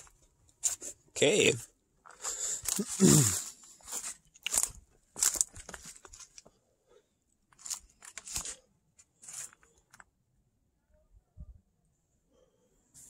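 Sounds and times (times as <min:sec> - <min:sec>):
footsteps crunching leaves and stones: 0:02.1 - 0:06.5.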